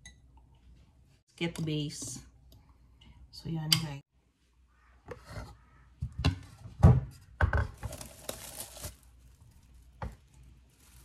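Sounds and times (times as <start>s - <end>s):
plastic film crinkling: 7.8s - 11.0s.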